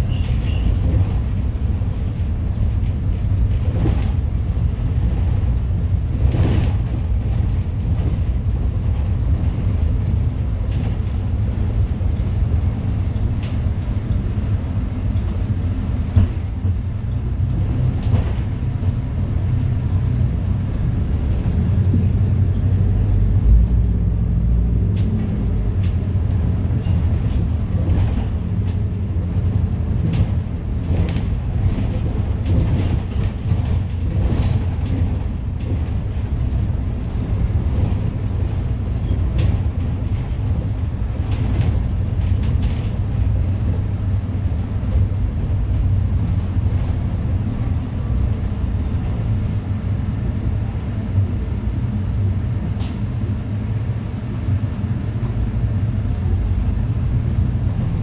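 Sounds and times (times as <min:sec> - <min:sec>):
bus engine and road rumble: 0:00.0 - 0:58.0
body rattles and knocks: 0:25.0 - 0:49.5.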